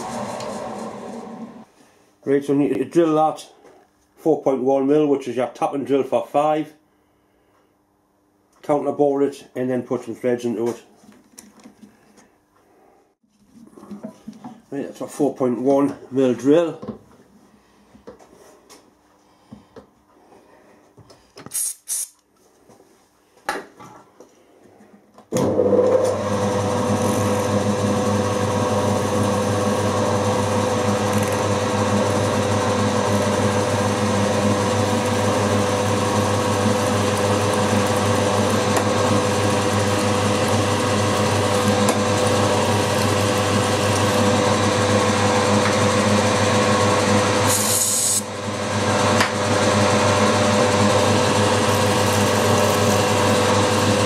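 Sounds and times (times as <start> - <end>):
milling machine motor hum: 0.0 - 1.7, 25.5 - 54.0
drill cutting through metal: 26.0 - 54.0.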